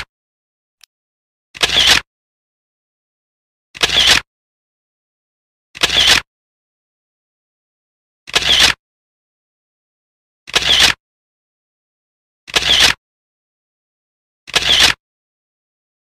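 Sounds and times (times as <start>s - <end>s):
camera shutter double click: 3.8s - 4.2s, 5.8s - 6.2s, 8.3s - 8.8s, 10.5s - 11.0s, 14.5s - 15.0s.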